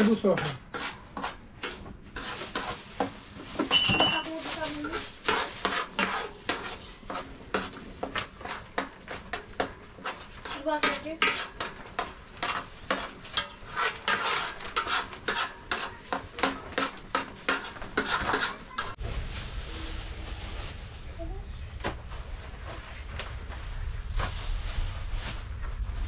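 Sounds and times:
utensil scraping metal pot: 0.0s - 19.0s.

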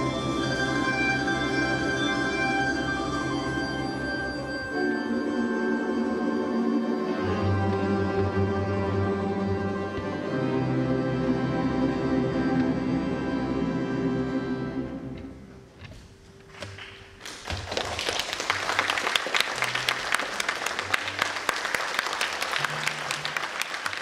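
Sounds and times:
audience applause: 16.7s - 24.0s.

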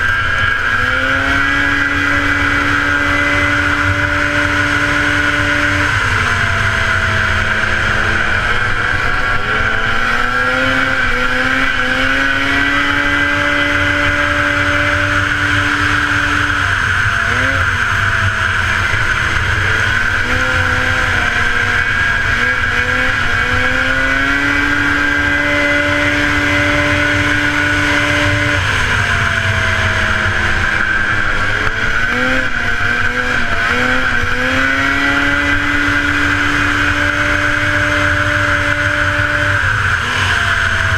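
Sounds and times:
snowmobile engine revving high: 0.0s - 40.9s.

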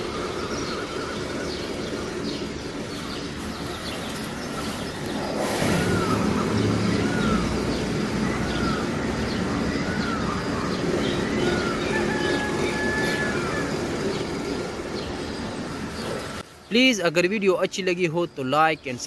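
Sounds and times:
short rising-and-falling chirp: 4.4s - 14.0s.

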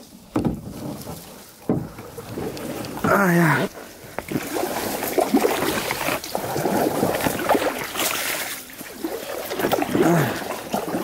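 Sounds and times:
branches crackling and knocking: 0.0s - 3.4s
branches and leaves scraping kayak: 0.0s - 11.0s.

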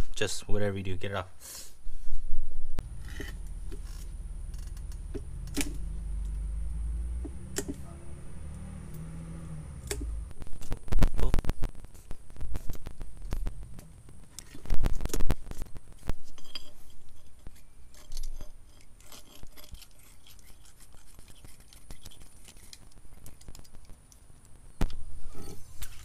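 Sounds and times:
knife scraping rubber off metal: 16.3s - 23.7s.

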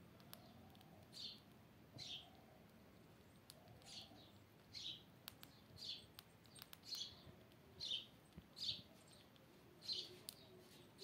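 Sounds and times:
faint clicks: 0.2s - 1.6s, 2.2s - 7.6s, 10.2s - 10.5s
high chirp calls: 0.4s - 11.0s.

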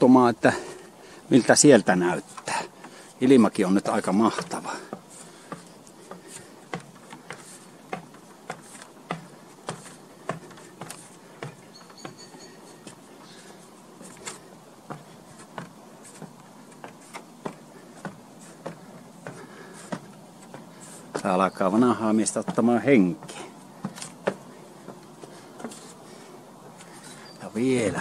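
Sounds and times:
footsteps on wooden stairs: 1.5s - 28.0s
faint high chirp: 11.7s - 13.0s, 27.0s - 27.6s.

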